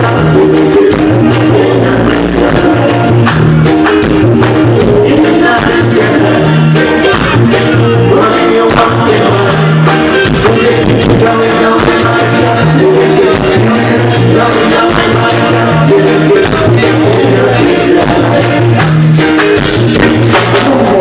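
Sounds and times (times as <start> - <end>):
person singing: 0.0 - 19.0, 20.0 - 21.0
bass line: 0.0 - 21.0
keyboard: 0.0 - 21.0
drum beat: 7.1 - 12.6.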